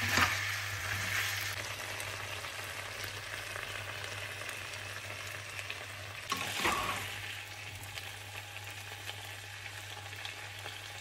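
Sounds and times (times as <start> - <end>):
spatula scraping wok: 0.0 - 1.6, 6.3 - 7.2
stir fry sizzling in wok: 0.0 - 11.0.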